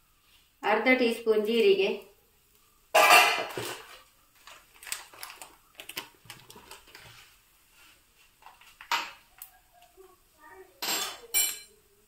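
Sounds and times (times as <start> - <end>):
seeds crackling in hot pan: 0.0 - 10.3
steel spoon clattering in iron pan: 10.8 - 11.7.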